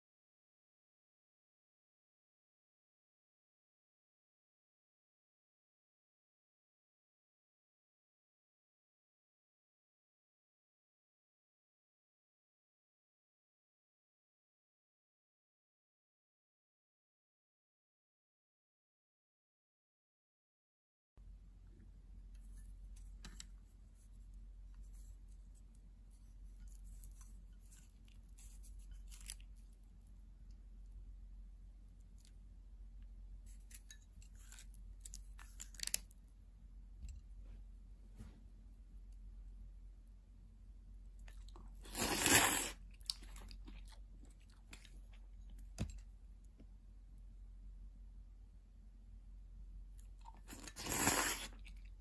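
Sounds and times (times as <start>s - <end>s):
low steady hum: 21.2s - 52.0s
slurping noodles: 41.8s - 43.6s, 50.2s - 51.9s.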